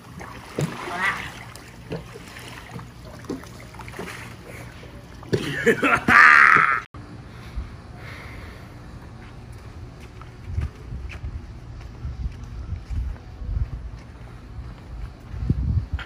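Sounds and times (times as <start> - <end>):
pool water sloshing: 0.0 - 6.8.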